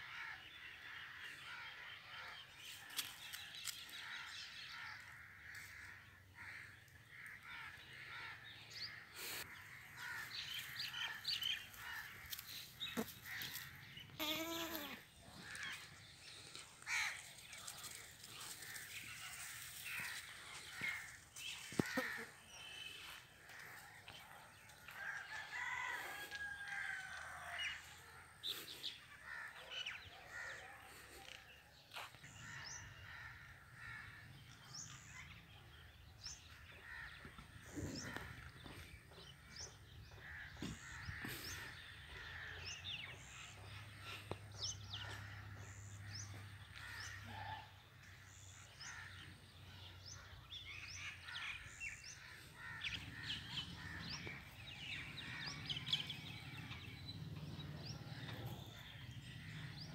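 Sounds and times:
faint outdoor background noise: 0.0 - 59.9
birds chirping: 5.5 - 24.4, 48.3 - 59.9.

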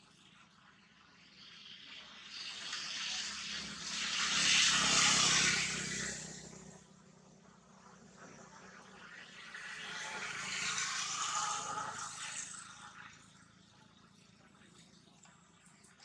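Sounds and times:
passing vehicle engine: 2.3 - 13.4.

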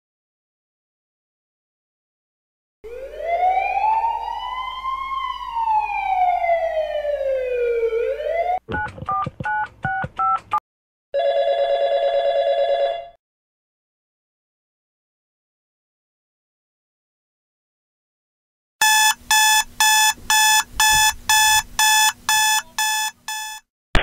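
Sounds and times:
ambulance siren wail: 2.9 - 8.6
telephone ringing: 11.2 - 13.2, 18.8 - 23.6
touch-tone dialling beeps: 18.8 - 23.6.

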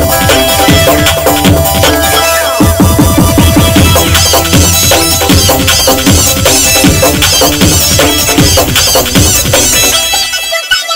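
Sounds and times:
electronic dance music: 0.0 - 10.9.

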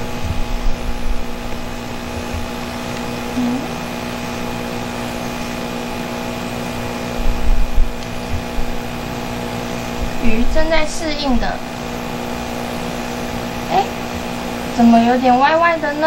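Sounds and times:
low thumps: 0.0 - 3.8, 7.2 - 9.0
steady mechanical hum: 0.0 - 16.0.

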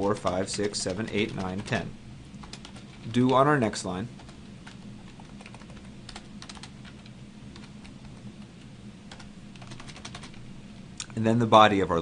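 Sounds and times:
computer keyboard keys clicking: 0.0 - 1.8, 2.4 - 3.4, 4.2 - 8.2, 9.1 - 10.4
faint low hum: 0.0 - 12.0.

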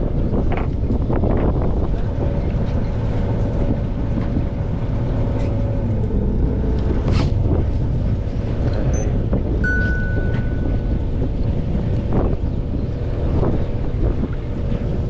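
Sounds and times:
boat engine rumbling: 0.0 - 15.0.

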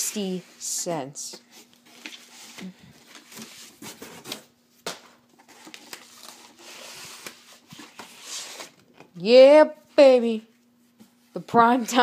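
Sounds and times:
cardboard and paper rustling: 1.3 - 4.5, 5.3 - 9.1.

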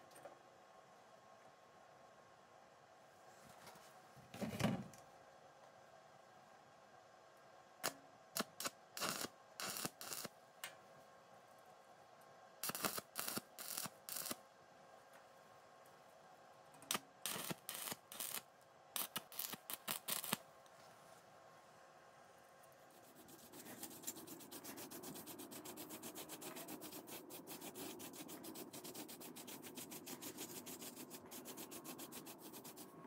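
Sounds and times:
arc welding crackling: 8.4 - 10.3, 12.6 - 14.4, 16.9 - 20.4.

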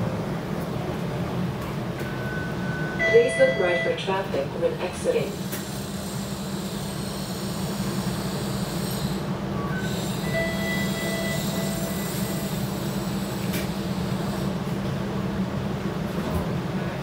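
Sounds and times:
streetcar rumbling on rails: 0.0 - 17.0
thin high wheel tone: 6.1 - 13.4.

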